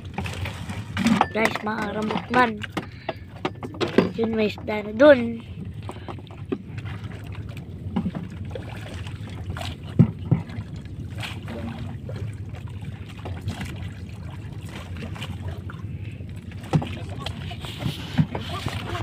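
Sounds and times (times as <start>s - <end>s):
low motor hum: 0.0s - 19.0s
net knocking against hull: 9.9s - 10.6s.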